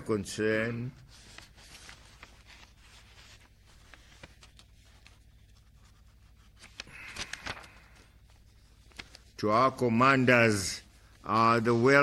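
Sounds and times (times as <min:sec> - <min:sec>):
paper rustling: 0:01.0 - 0:09.5.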